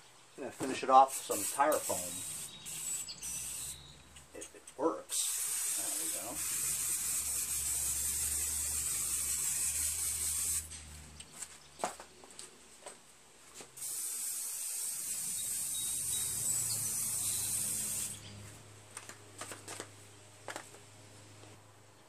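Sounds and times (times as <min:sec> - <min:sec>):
aerosol can spraying: 0:00.6 - 0:03.8, 0:05.1 - 0:10.8, 0:13.8 - 0:18.2.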